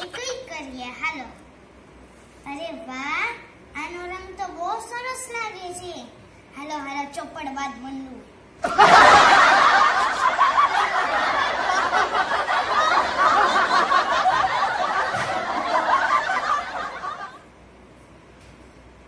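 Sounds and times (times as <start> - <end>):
people laughing: 8.6 - 17.4.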